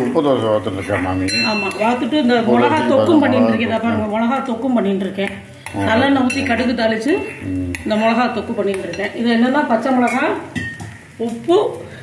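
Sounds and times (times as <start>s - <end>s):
utensils clinking against pan: 0.8s - 2.2s, 5.2s - 11.1s
woman talking: 1.5s - 10.5s, 11.2s - 11.9s.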